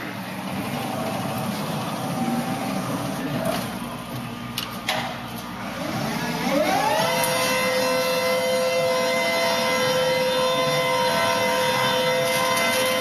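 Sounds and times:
electric motor whine: 0:05.6 - 0:13.0.

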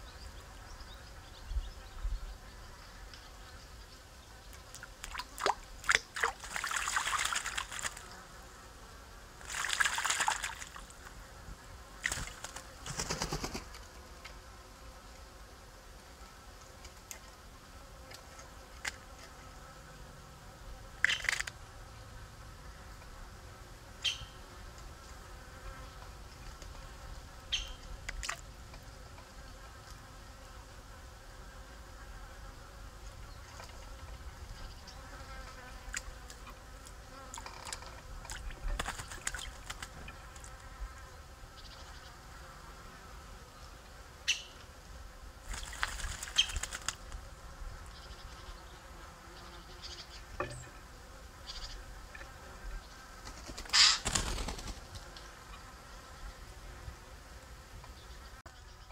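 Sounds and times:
insects buzzing: 0:00.0 - 0:58.9
wings fluttering: 0:04.7 - 0:08.2, 0:09.4 - 0:11.1, 0:12.0 - 0:14.0, 0:37.2 - 0:40.6, 0:45.4 - 0:47.2, 0:53.0 - 0:55.3
bird splashing in water: 0:05.0 - 0:08.1, 0:09.4 - 0:10.9, 0:12.0 - 0:13.7, 0:38.3 - 0:39.9, 0:45.5 - 0:47.0.

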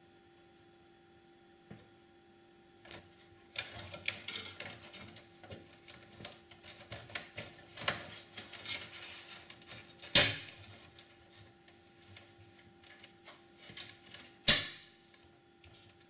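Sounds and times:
computer parts clicking and rattling: 0:03.6 - 0:11.1.

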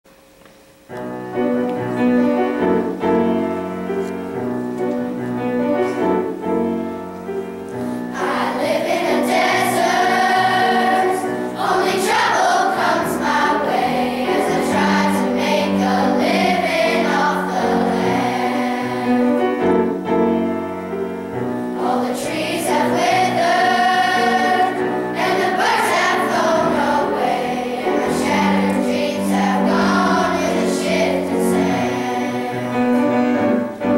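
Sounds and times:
piano accompaniment: 0:00.1 - 0:33.9
choir singing: 0:08.1 - 0:20.0, 0:21.7 - 0:33.9.

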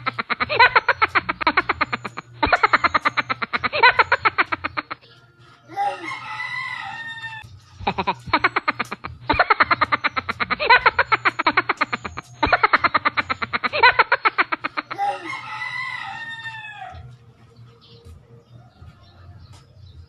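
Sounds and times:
music with fast beat: 0:00.0 - 0:05.3, 0:07.3 - 0:14.9
rooster crowing: 0:05.7 - 0:08.1, 0:15.0 - 0:17.2.

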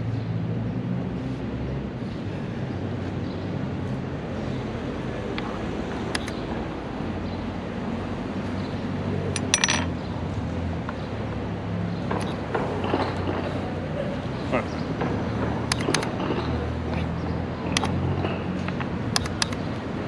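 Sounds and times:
street traffic hum: 0:00.0 - 0:20.0
chess pieces set on board: 0:09.3 - 0:09.9.

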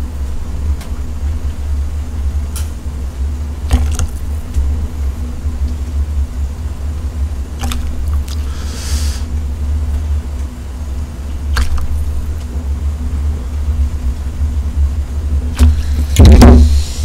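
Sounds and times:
brief hiss: 0:08.4 - 0:09.3.

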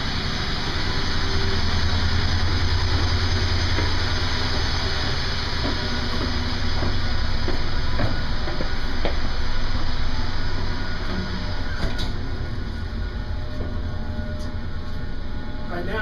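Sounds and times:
ship engines droning: 0:00.0 - 0:16.0
footsteps on stairs: 0:02.9 - 0:12.0.

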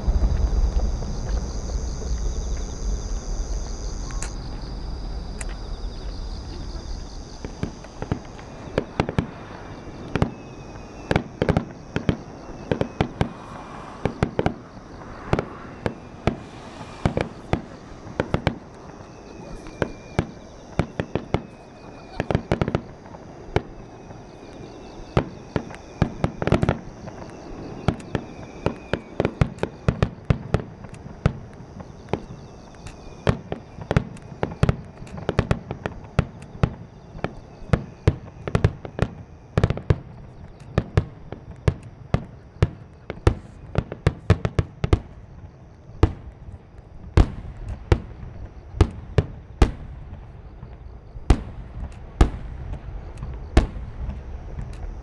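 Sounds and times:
firework shells bursting: 0:07.4 - 0:23.7.

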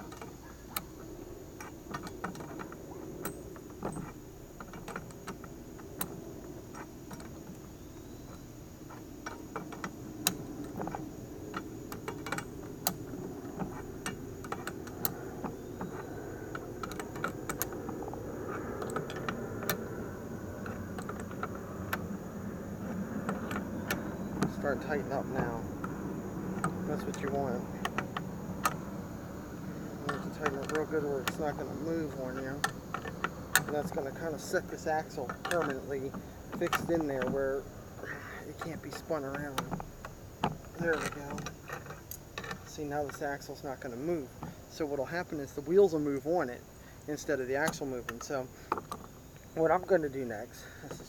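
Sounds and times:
low hum: 0:00.0 - 0:51.0
wrench and nut metallic clicks: 0:08.3 - 0:20.0, 0:29.8 - 0:43.5.

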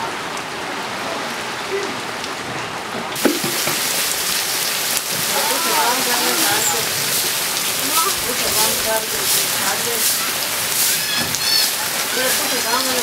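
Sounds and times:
heavy rain splashing: 0:00.0 - 0:13.0
sharp knock: 0:03.2 - 0:03.8.

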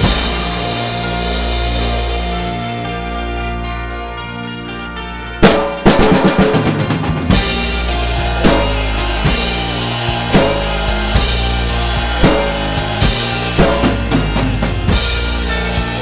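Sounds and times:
drum kit playing rock groove: 0:00.0 - 0:03.2, 0:05.4 - 0:16.0
recorded backing song: 0:00.0 - 0:16.0.

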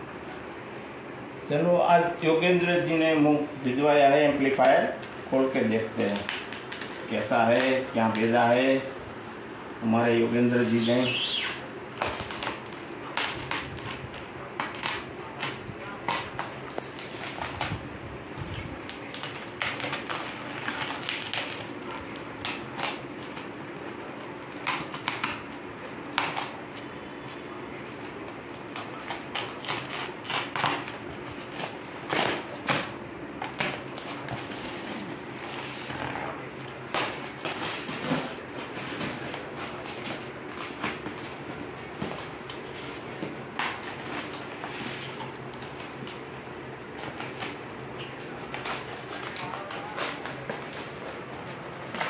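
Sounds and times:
faint steady hum: 0:00.0 - 0:52.0
plastic wrapping being torn open: 0:04.6 - 0:08.5, 0:18.8 - 0:26.6, 0:28.1 - 0:52.0.

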